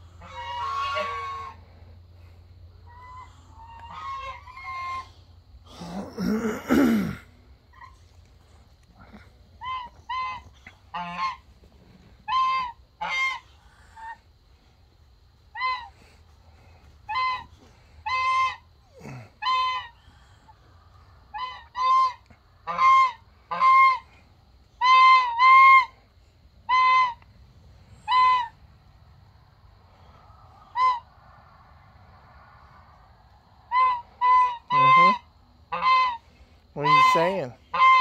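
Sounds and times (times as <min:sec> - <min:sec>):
geese honking: 0:00.0 - 0:01.8, 0:02.9 - 0:05.2, 0:09.6 - 0:14.2, 0:15.5 - 0:16.1, 0:17.0 - 0:18.7, 0:19.4 - 0:20.0, 0:21.3 - 0:24.1, 0:24.8 - 0:26.0, 0:26.6 - 0:27.2, 0:28.0 - 0:28.6, 0:30.7 - 0:31.1, 0:33.7 - 0:38.0.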